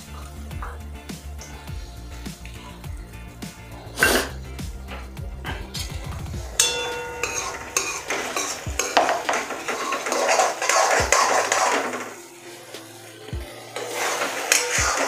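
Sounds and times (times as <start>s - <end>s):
spoon clinking against metal pan: 6.6s - 11.7s
spoon stirring thick sauce: 7.2s - 12.0s.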